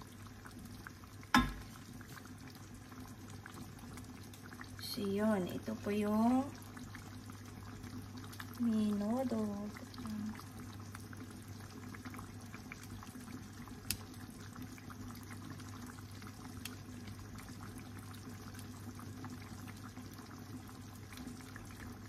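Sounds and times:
sauce bubbling in a pan: 0.0 - 22.0
small pops: 13.8 - 14.1.

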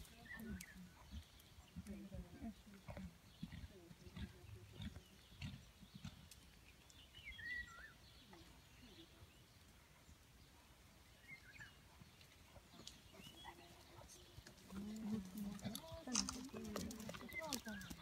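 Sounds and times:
faint bird chirps: 2.9 - 14.5.

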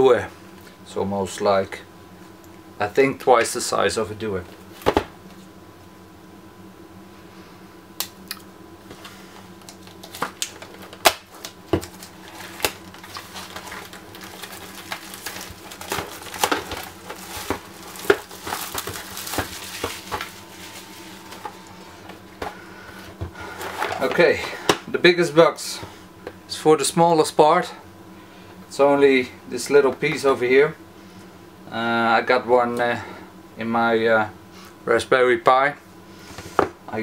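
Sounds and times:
scraping and crinkling: 8.9 - 24.7
packaging being cut open: 9.7 - 20.3.

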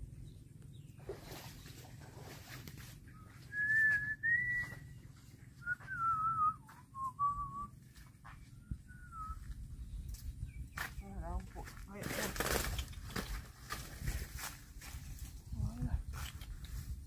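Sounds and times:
person whistling a tune: 3.5 - 4.8, 5.6 - 7.7, 8.9 - 9.4.

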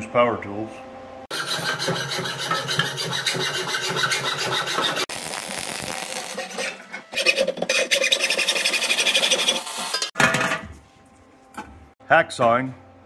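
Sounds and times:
hacksaw cutting steel pipe: 1.3 - 5.1, 6.3 - 10.1.

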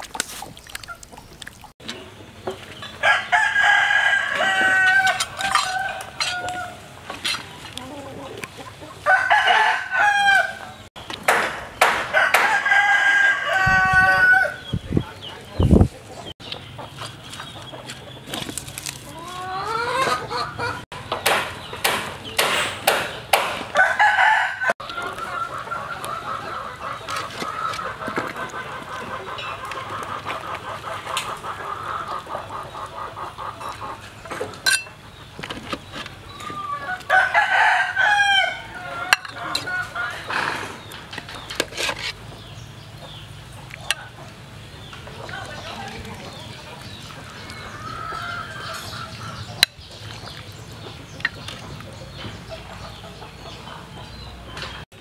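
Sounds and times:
hens clucking: 0.0 - 10.9, 12.2 - 21.3, 23.4 - 54.8
rooster crowing: 3.0 - 6.8, 9.0 - 10.7, 12.1 - 14.6, 23.8 - 24.8, 36.6 - 40.2
metal ladle clinking on pot: 34.6 - 35.0.

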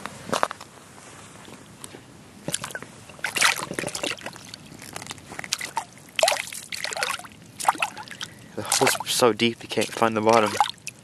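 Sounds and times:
water dribbling: 2.4 - 11.0
water sloshing and splashing: 2.4 - 11.0.

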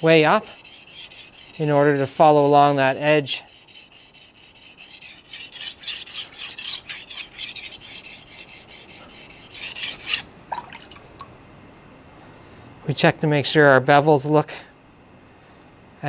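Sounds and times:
knife scraping on whetstone: 0.0 - 10.3.

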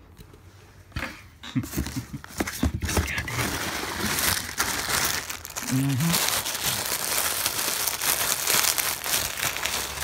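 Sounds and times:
plastic wrapping crinkling: 2.2 - 10.0
person humming: 5.6 - 6.3.

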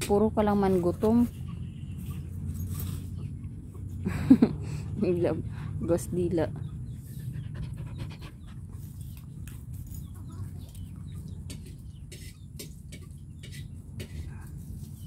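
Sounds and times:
chickens clucking: 6.5 - 14.3.

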